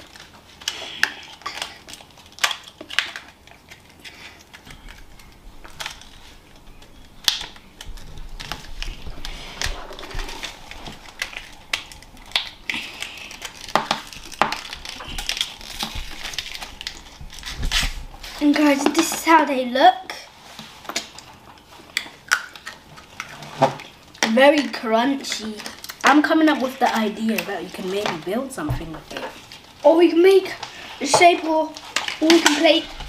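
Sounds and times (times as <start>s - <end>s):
cardboard boxes crinkling: 0.0s - 18.7s.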